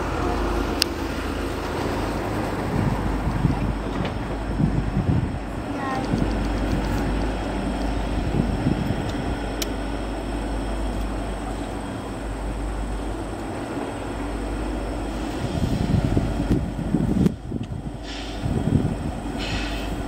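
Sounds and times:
diesel locomotive engine rumble: 0:00.0 - 0:20.0.

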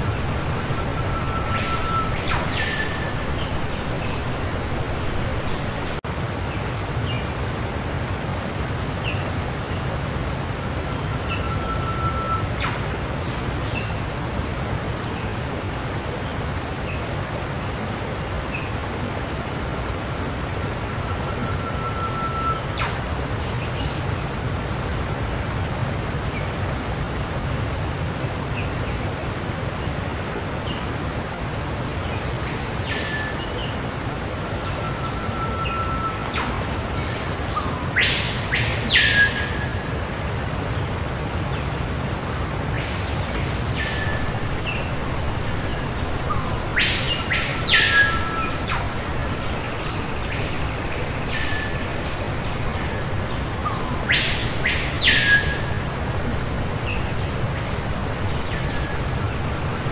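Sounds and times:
static hiss: 0:28.2 - 0:59.9.

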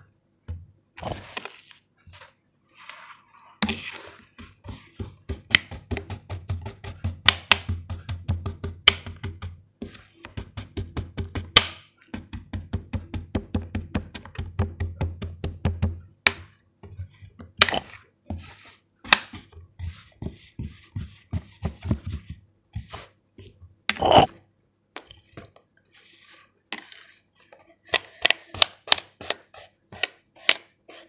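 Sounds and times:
knife chopping sand on a board: 0:03.6 - 0:24.4, 0:27.9 - 0:31.0.

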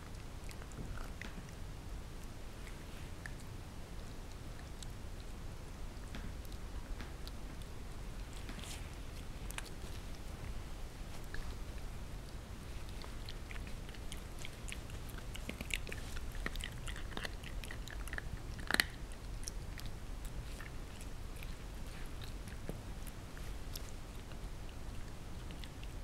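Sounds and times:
puppy crunching chew treat: 0:06.1 - 0:26.0.

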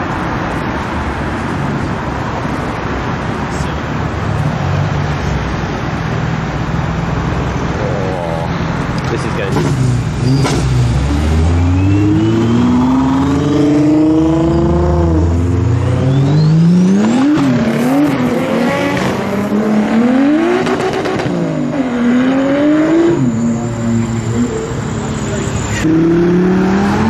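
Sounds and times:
car engines revving hard: 0:00.0 - 0:27.0
faint rising whistle: 0:11.4 - 0:13.2, 0:15.8 - 0:16.9.

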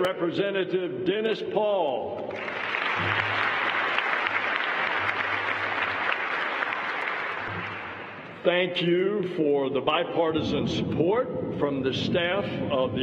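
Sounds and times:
audience applauding: 0:02.3 - 0:08.4.

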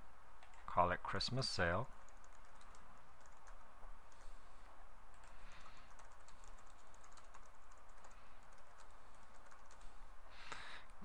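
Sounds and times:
faint steady hum: 0:00.0 - 0:11.0
computer keyboard typing: 0:02.0 - 0:04.3, 0:05.1 - 0:10.0.

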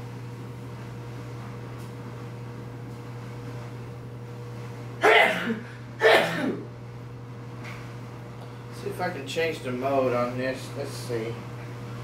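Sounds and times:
low indoor hum: 0:00.0 - 0:12.0.

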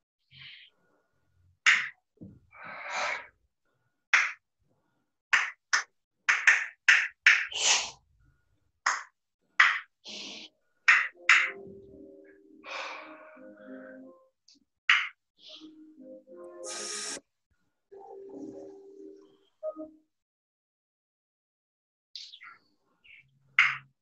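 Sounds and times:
person breathing sharply: 0:12.6 - 0:14.1.

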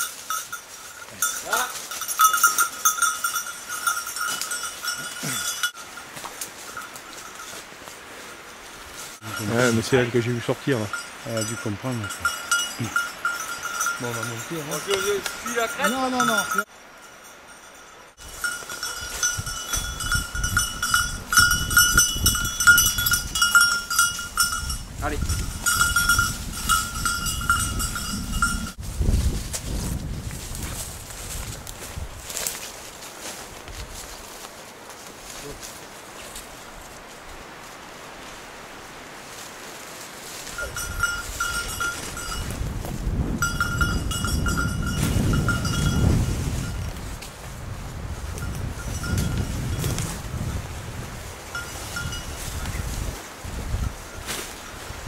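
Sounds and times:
dog collar bell jingling: 0:00.0 - 0:06.1, 0:09.2 - 0:28.8, 0:40.5 - 0:42.6, 0:43.4 - 0:47.0, 0:48.3 - 0:49.8, 0:51.6 - 0:52.4
rustling in dry leaves: 0:00.0 - 0:11.4, 0:17.6 - 0:55.0.

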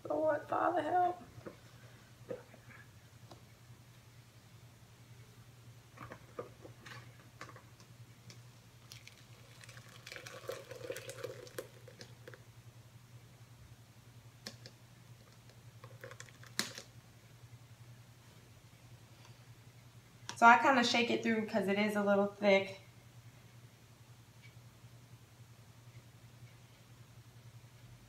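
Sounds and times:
thick liquid pouring: 0:08.8 - 0:12.4, 0:15.8 - 0:16.7.

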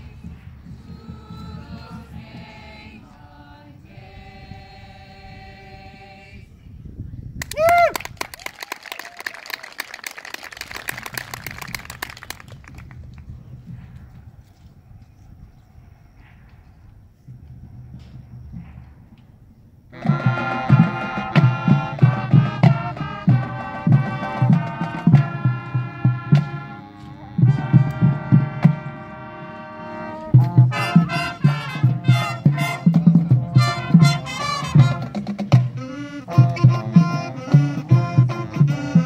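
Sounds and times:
marching band playing: 0:19.9 - 0:39.0
steady drum beat: 0:20.0 - 0:29.1, 0:30.3 - 0:39.0.

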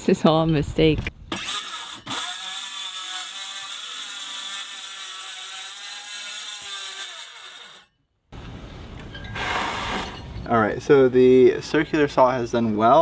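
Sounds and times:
circular saw cutting fiberglass: 0:01.3 - 0:07.9
rough cutting noise: 0:01.3 - 0:07.9.

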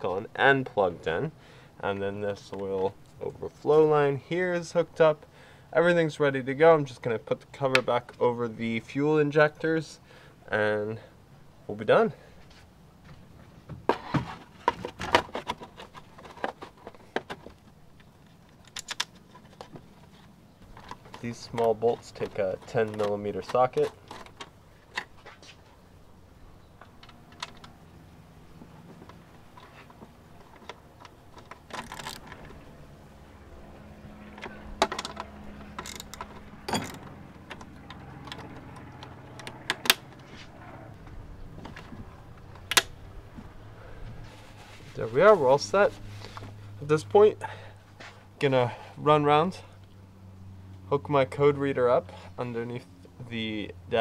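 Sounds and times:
tool clacking on plastic cover: 0:20.6 - 0:25.1.

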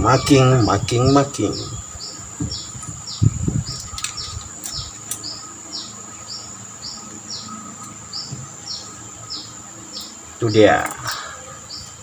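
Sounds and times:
low handling knocks: 0:02.3 - 0:03.0, 0:08.2 - 0:08.6.

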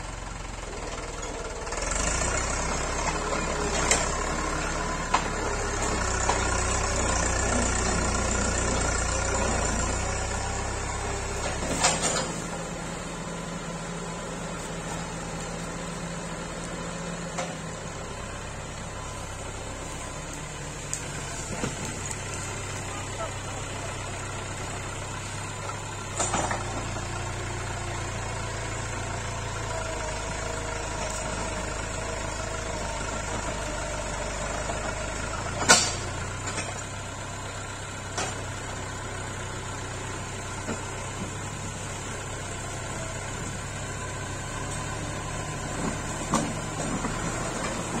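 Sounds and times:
tractor diesel engine running: 0:00.0 - 0:48.0
sharp knocks of tractor blade: 0:11.4 - 0:12.6, 0:35.6 - 0:36.8.

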